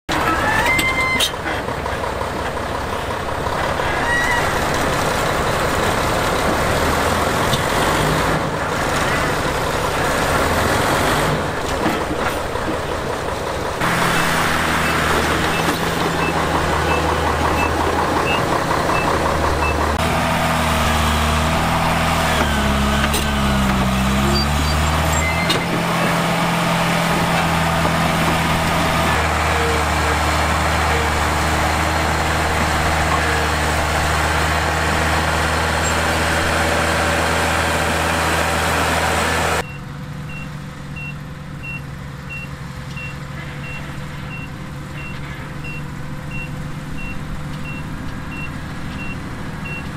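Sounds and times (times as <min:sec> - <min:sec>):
diesel construction machinery engine drone: 0:00.1 - 0:49.9
reversing alarm beeps: 0:39.6 - 0:49.9.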